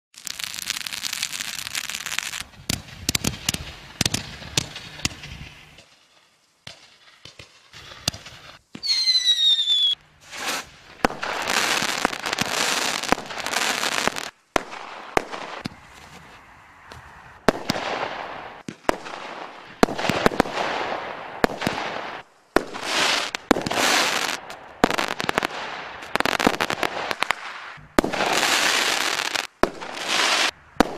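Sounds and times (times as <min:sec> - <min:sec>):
fireworks shots and bursts: 0:00.2 - 0:16.0, 0:16.9 - 0:30.9
firework whistle falling in pitch: 0:08.8 - 0:10.0.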